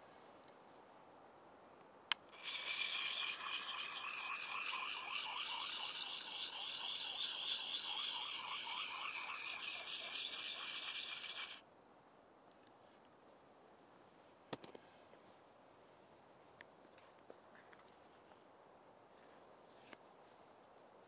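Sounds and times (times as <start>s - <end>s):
rhythmic rasping scrape: 2.3s - 11.6s.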